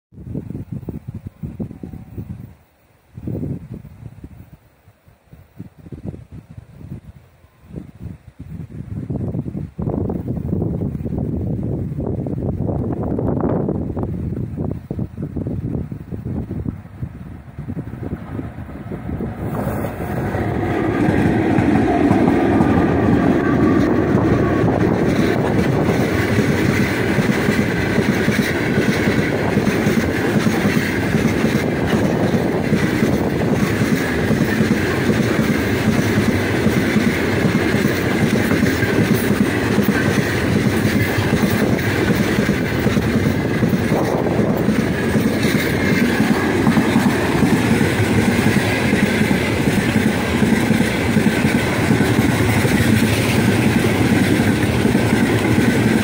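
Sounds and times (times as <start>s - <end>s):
electric locomotives passing: 0.2s - 56.0s
train wheels clattering over rails: 17.0s - 56.0s.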